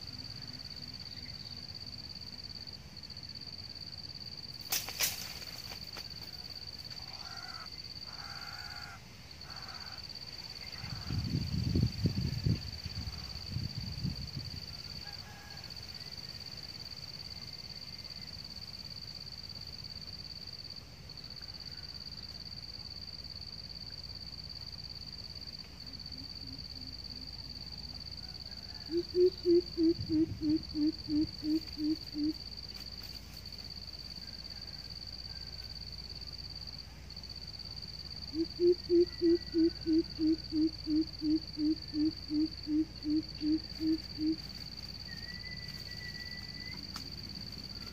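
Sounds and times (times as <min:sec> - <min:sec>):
high-pitched insect drone: 0:00.0 - 0:47.9
deep hooting bird call: 0:07.0 - 0:10.0, 0:28.6 - 0:32.4, 0:38.3 - 0:44.4
faint low hoots: 0:28.2 - 0:32.4, 0:38.3 - 0:44.5.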